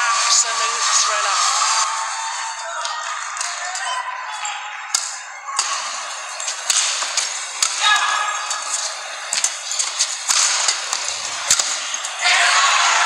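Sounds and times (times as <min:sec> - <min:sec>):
arena crowd noise: 0:00.0 - 0:13.0
racket hitting shuttlecock: 0:04.9 - 0:12.2.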